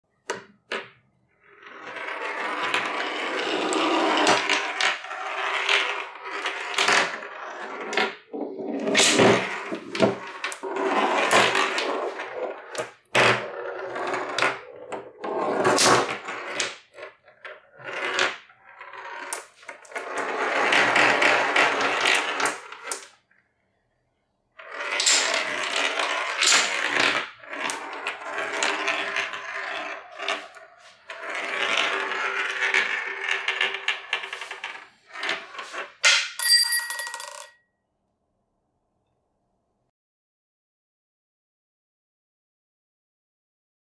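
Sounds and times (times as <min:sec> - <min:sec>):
marbles rolling on wooden tracks: 0:00.7 - 0:23.2, 0:24.6 - 0:37.6
blocks and dominoes clacking: 0:24.6 - 0:37.6.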